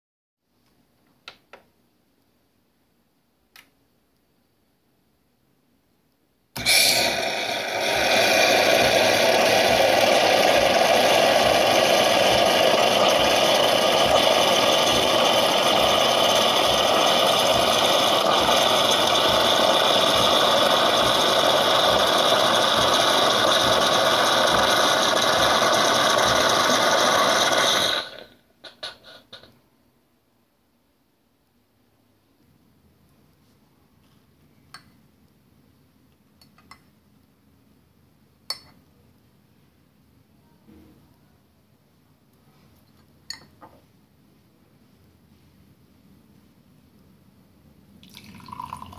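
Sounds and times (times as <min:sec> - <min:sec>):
espresso machine pump: 0:06.6 - 0:29.5
milk spurting and sputtering: 0:06.6 - 0:29.5
steam hissing: 0:06.6 - 0:29.5.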